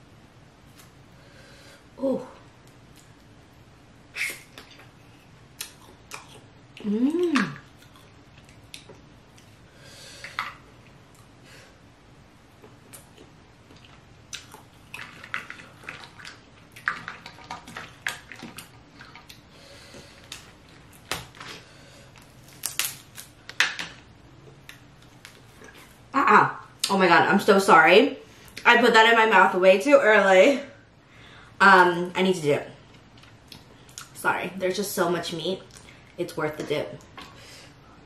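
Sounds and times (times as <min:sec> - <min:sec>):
person humming: 0:06.8 - 0:07.6
wet chewing and slurping: 0:12.6 - 0:20.5.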